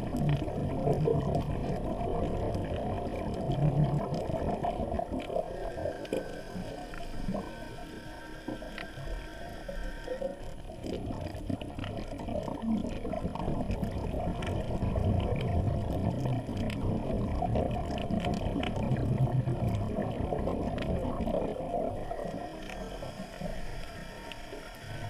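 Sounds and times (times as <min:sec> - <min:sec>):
muffled underwater breathing bubbles: 0:00.0 - 0:25.0
faint clicks: 0:08.4 - 0:12.6, 0:22.1 - 0:25.0.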